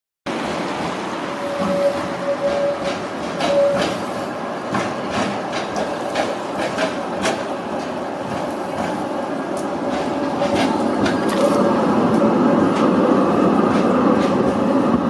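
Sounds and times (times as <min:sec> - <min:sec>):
tram wheels clicking over rail joints: 0:00.6 - 0:15.0.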